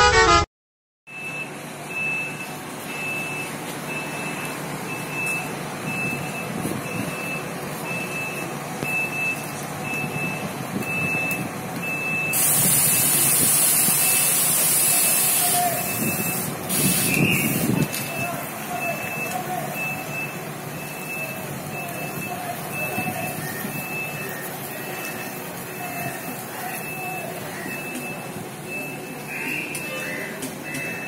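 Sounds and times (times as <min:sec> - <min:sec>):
reversing beeper: 0:00.0 - 0:00.5, 0:01.1 - 0:31.0
air hiss: 0:12.4 - 0:15.7, 0:16.4 - 0:17.7.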